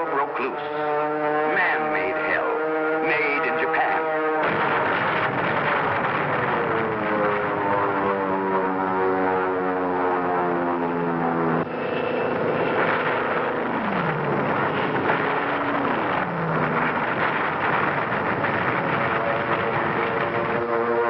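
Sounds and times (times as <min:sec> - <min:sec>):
aircraft engines: 0:00.0 - 0:21.0
gunfire: 0:03.2 - 0:07.4
explosions: 0:04.4 - 0:08.0, 0:12.2 - 0:20.6.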